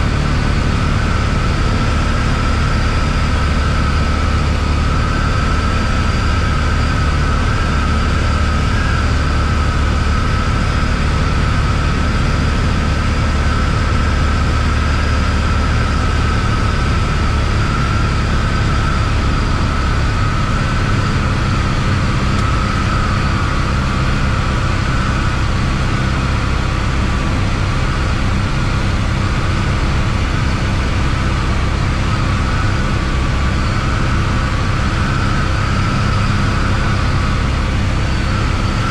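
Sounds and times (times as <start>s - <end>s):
propeller plane engine drone: 0.0s - 38.9s.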